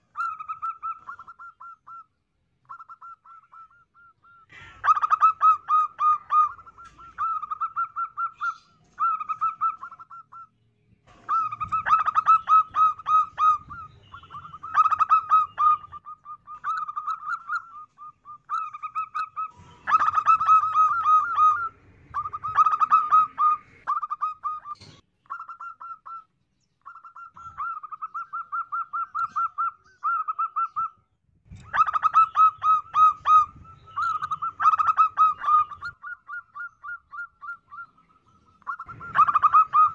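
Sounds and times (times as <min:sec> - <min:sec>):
dove cooing: 0:00.0 - 0:02.1, 0:02.7 - 0:10.5, 0:11.1 - 0:26.2, 0:26.9 - 0:39.9.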